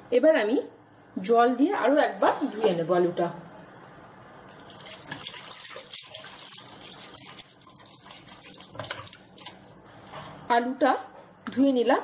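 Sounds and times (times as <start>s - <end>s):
water draining through colander: 4.5s - 9.7s
water pouring and splashing: 4.5s - 9.7s.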